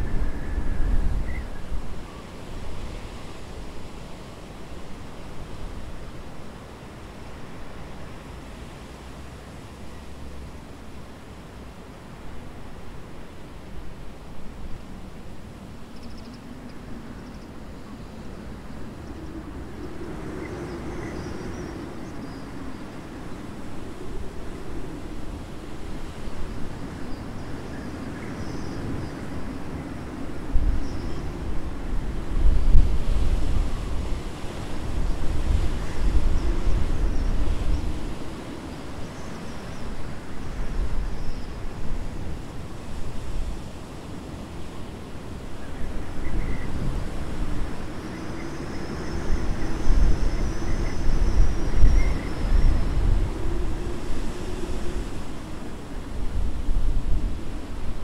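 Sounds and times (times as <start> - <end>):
grass and trees rustling: 0.0 - 58.0
steady rush of wind: 0.0 - 58.0
faint bird chirps: 15.9 - 18.3
wind buffeting microphone: 18.4 - 58.0.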